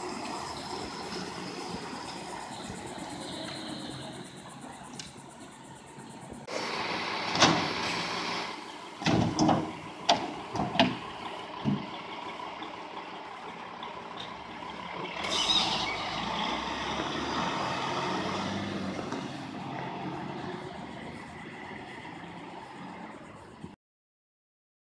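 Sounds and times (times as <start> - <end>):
truck engine running: 0.0 - 23.7
sharp bangs and clunks: 9.0 - 11.9.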